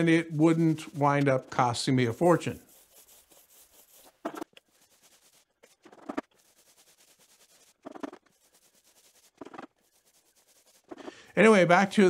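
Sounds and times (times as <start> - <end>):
paint roller rolling on concrete: 2.1 - 11.1.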